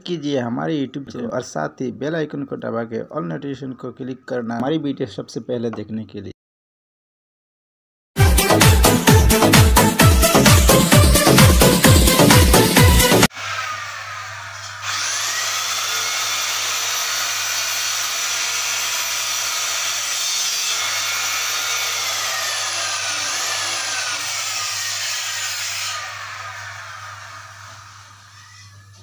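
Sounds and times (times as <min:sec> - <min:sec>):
angle grinder cutting tile: 0:10.2 - 0:28.8.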